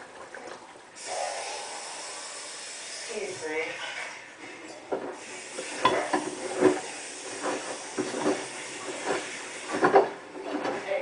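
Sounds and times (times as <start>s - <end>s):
laundry sloshing in water: 0.0s - 1.0s, 3.7s - 11.0s
steady hiss: 1.0s - 3.8s, 5.1s - 10.0s
washing machine drum turning: 4.8s - 11.0s.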